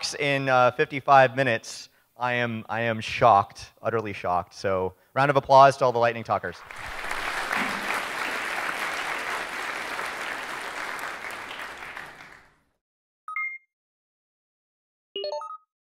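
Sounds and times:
audience applauding: 0:06.6 - 0:12.6.

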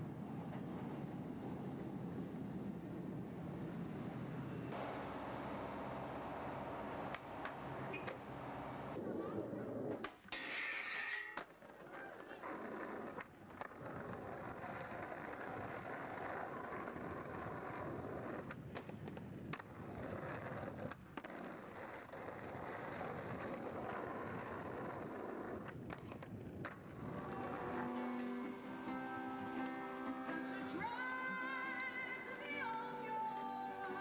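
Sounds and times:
skateboard wheels rolling on pavement: 0:00.0 - 0:34.0
skateboard clacks: 0:07.0 - 0:28.4.

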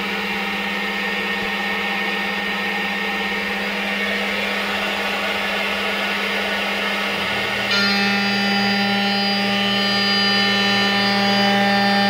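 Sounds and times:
spindle steady tone: 0:00.0 - 0:12.0
milling aluminum cutting noise: 0:03.6 - 0:12.0.

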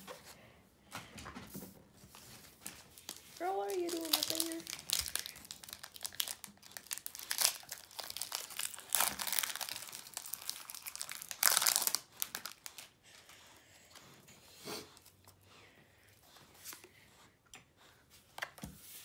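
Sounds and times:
foil wrapper crinkling and tearing: 0:02.6 - 0:13.0.

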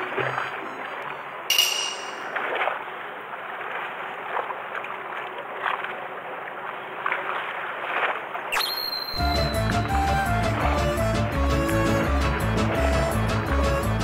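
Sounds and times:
water sloshing against boat hull: 0:00.0 - 0:08.6.

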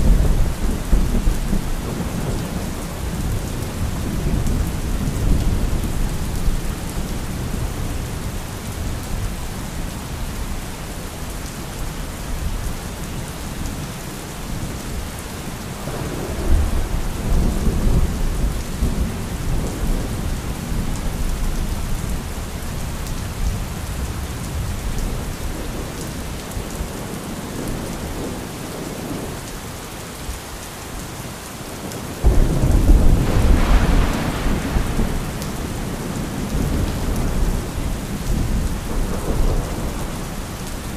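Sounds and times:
rolling thunder: 0:00.0 - 0:09.0, 0:15.9 - 0:22.2, 0:32.2 - 0:40.9
steady rain: 0:00.0 - 0:40.9
thunder clap: 0:32.2 - 0:37.7.

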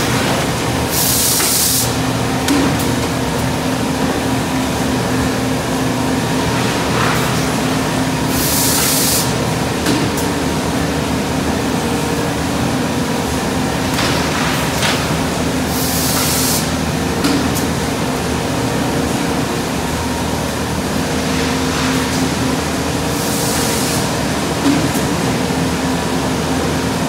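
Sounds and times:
compressed air hiss: 0:08.3 - 0:09.4, 0:15.7 - 0:16.8.

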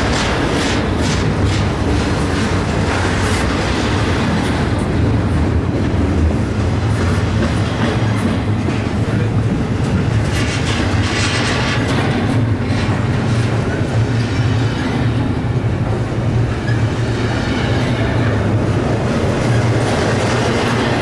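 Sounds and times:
train wheels clacking: 0:00.0 - 0:21.0
train wheels rumbling on rail: 0:00.0 - 0:21.0.

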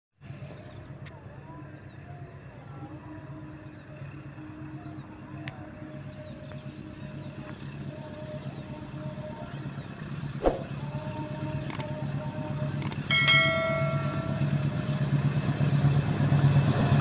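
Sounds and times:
diesel locomotive engine drone: 0:00.2 - 0:17.0.

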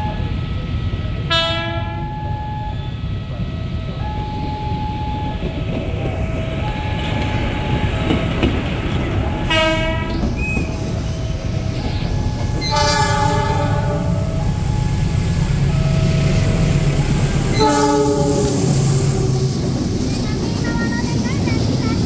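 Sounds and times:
train rumbling: 0:00.0 - 0:22.0
train horn blasts: 0:01.3 - 0:02.2, 0:09.4 - 0:10.2, 0:12.6 - 0:14.6, 0:17.3 - 0:19.6.

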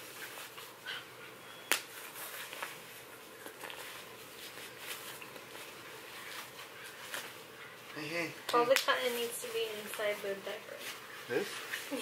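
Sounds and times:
fabric rustling: 0:01.9 - 0:07.6, 0:08.8 - 0:12.0.

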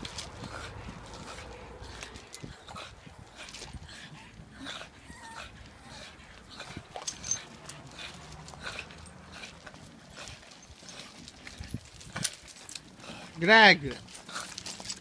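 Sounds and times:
dog whining: 0:04.6 - 0:06.2
dog paws crunching gravel: 0:06.3 - 0:15.0.

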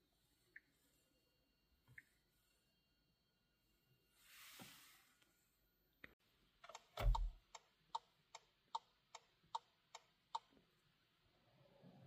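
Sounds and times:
turn signal ticking: 0:06.6 - 0:10.5.

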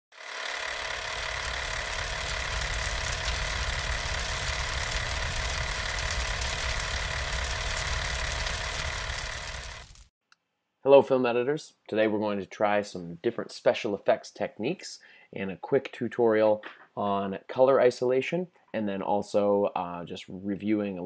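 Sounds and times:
mechanical whirring clatter: 0:00.1 - 0:10.1.

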